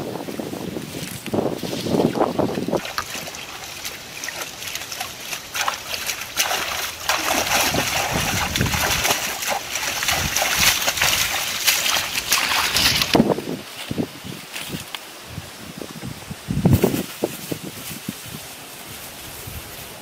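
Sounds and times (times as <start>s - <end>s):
hands splashing in muddy water: 1.0s - 13.3s.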